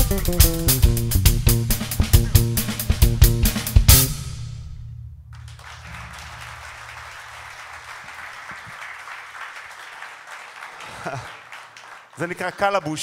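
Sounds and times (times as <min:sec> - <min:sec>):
drum kit hit: 0:00.0 - 0:07.6
electric bass note ringing: 0:00.0 - 0:07.6
audience applauding: 0:05.4 - 0:13.0.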